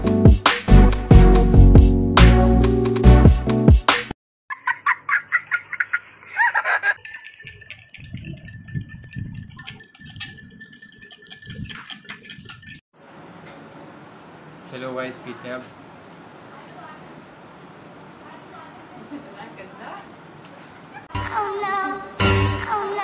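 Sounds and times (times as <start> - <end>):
spoon clinking against glass: 7.0 - 12.8.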